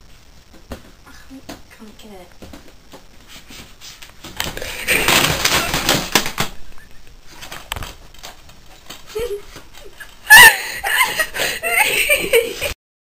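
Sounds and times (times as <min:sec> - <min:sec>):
loud laughter: 0:09.2 - 0:12.8.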